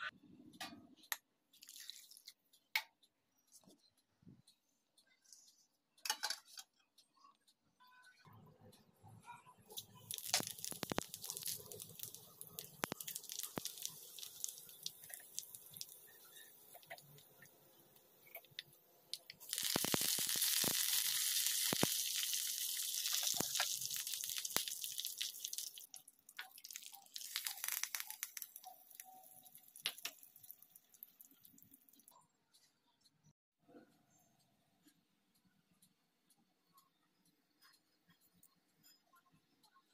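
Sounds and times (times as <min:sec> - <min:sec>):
hot oil crackling and sizzling: 0:09.7 - 0:17.5, 0:19.1 - 0:32.1.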